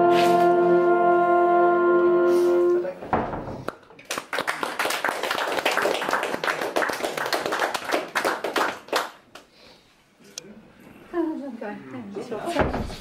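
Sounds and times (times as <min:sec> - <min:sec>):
audience applause: 0:04.0 - 0:09.2.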